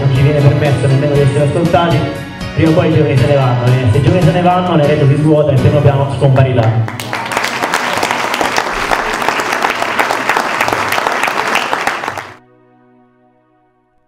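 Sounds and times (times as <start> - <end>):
audience applauding: 6.6 - 12.4.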